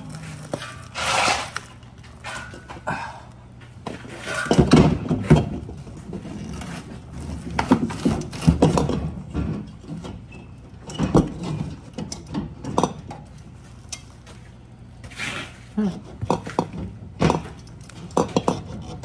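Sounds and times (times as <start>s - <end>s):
compressor knocks and clunks: 3.8s - 6.4s, 7.3s - 13.3s, 16.2s - 18.7s.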